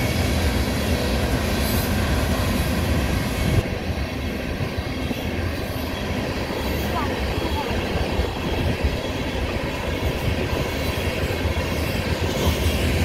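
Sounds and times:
freight cars rolling on rails: 0:00.0 - 0:13.0
locomotive heavy rumble: 0:00.0 - 0:13.0.

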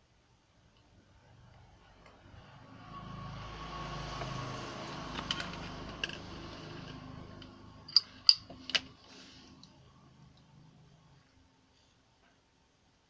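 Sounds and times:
vehicle passing: 0:01.3 - 0:11.2.

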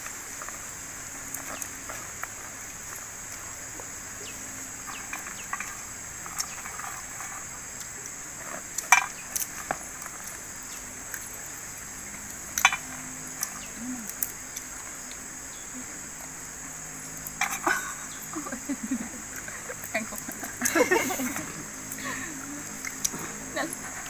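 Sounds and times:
high-pitched insect drone: 0:00.1 - 0:24.0.

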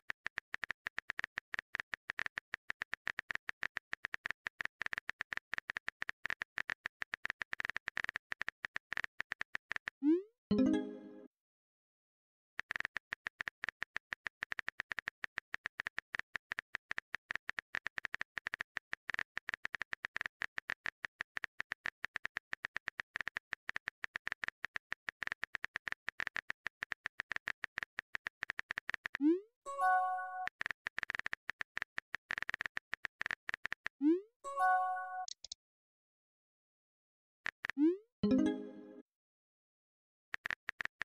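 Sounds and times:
message sent pop and chime: 0:10.5 - 0:11.3, 0:38.2 - 0:39.0
keyboard typing clicks: 0:34.9 - 0:35.6.

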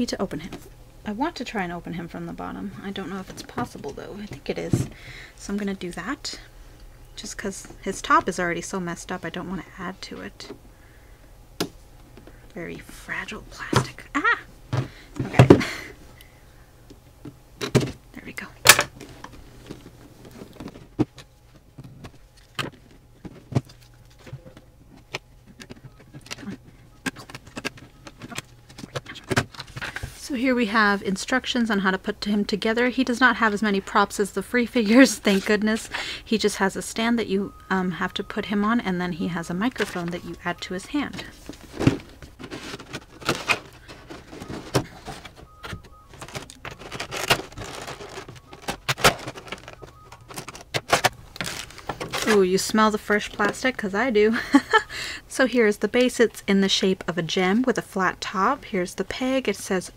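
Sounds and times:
plastic packaging clicking and crinkling: 0:18.7 - 0:30.2, 0:41.1 - 0:52.7
packaging rustling: 0:41.1 - 0:52.5.

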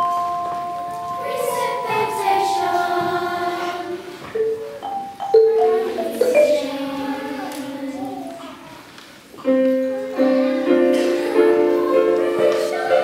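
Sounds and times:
mallet percussion: 0:00.0 - 0:07.9
children's choir singing: 0:00.0 - 0:13.0.

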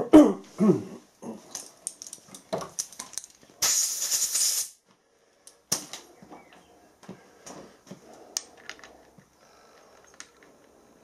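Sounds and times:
hissing air blast: 0:03.6 - 0:04.8.

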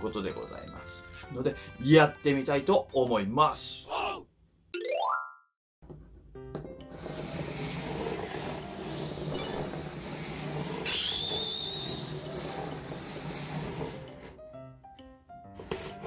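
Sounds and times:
rising whistle: 0:10.9 - 0:12.0.

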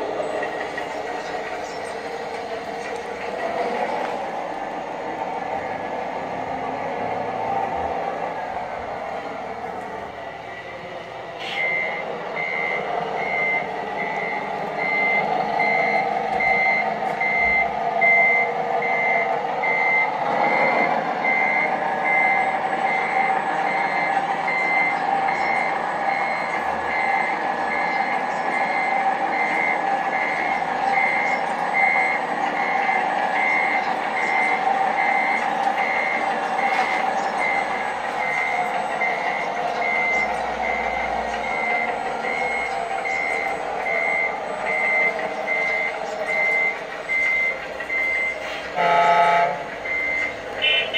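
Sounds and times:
high electronic reversing beeps: 0:11.4 - 0:48.6, 0:49.8 - 0:50.9.

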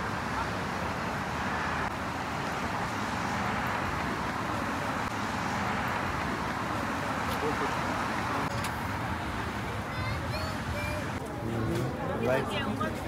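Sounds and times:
distant road traffic: 0:00.0 - 0:13.0.

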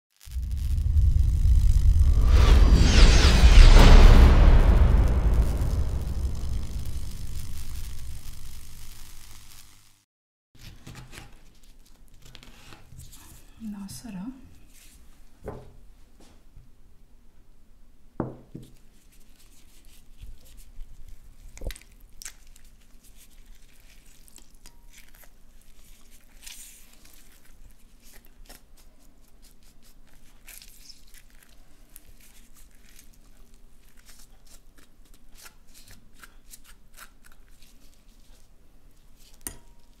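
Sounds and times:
knock: 0:18.2 - 0:18.6.

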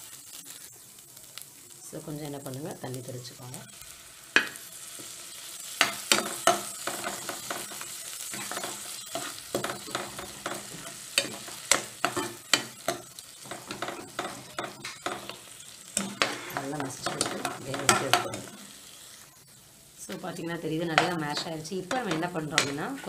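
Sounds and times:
food sizzling in oil: 0:00.0 - 0:23.0
ladle scraping and knocking pan: 0:05.8 - 0:18.7.

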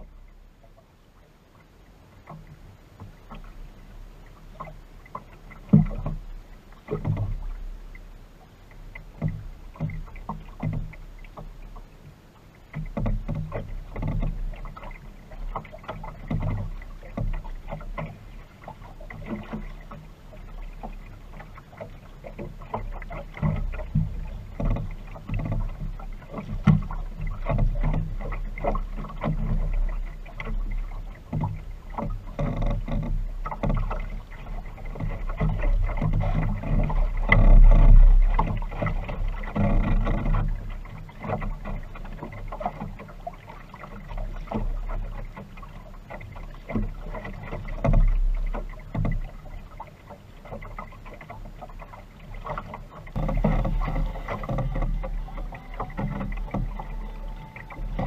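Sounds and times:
water slapping against hull: 0:00.0 - 0:58.0
sharp knock on hull: 0:05.6 - 0:06.2, 0:52.5 - 0:58.0
low rumble: 0:35.5 - 0:40.8, 0:53.2 - 0:58.0.

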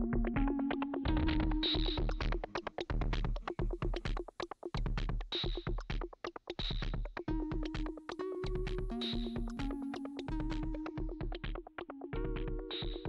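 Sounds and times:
electronic music with fast beat: 0:00.0 - 0:13.0.

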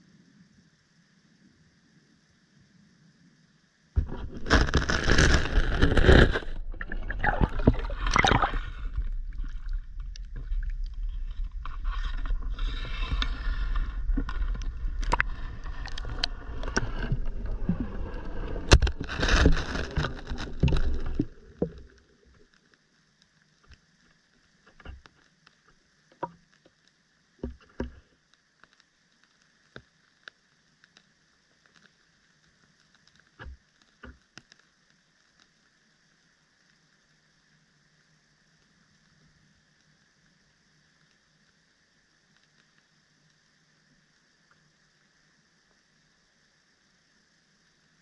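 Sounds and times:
scrapes and knocks on camera: 0:04.0 - 0:21.8
water rushing and sloshing: 0:04.0 - 0:22.6
faint ticks: 0:08.8 - 0:18.9, 0:20.6 - 0:48.0.

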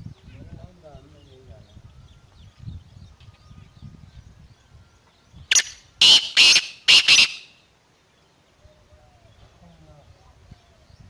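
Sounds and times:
bird giving harsh grating call: 0:05.5 - 0:07.6.

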